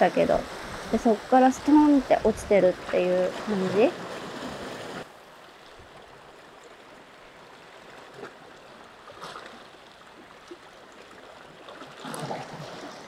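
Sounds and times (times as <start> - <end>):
sea washing against rocks: 0.0 - 5.1.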